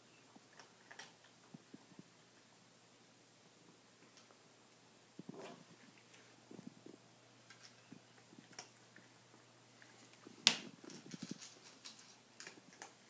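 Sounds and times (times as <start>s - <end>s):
cat chewing: 5.6s - 13.0s.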